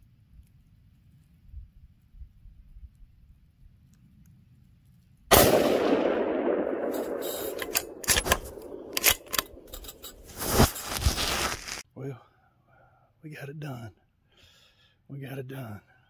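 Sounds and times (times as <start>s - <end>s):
gunshot echoing: 5.3s - 10.3s
sharp clicks and knocks: 6.9s - 10.4s.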